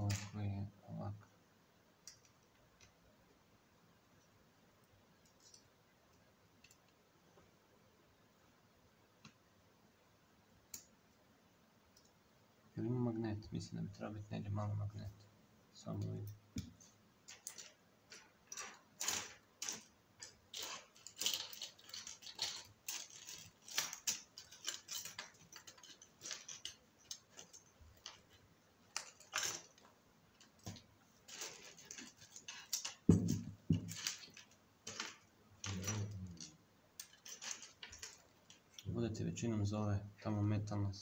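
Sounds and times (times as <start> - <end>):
small metallic clicks and scrapes: 5.2 - 5.7, 16.0 - 38.9.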